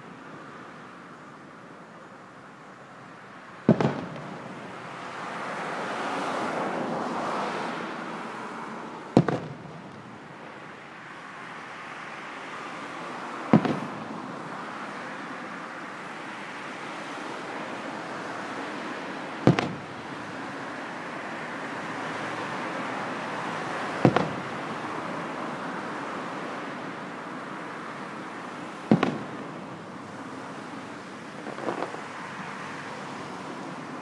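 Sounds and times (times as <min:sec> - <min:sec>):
distant firework booms: 0:03.7 - 0:04.7, 0:09.1 - 0:10.2, 0:13.5 - 0:14.0, 0:19.4 - 0:20.0, 0:24.0 - 0:24.6, 0:28.9 - 0:29.6.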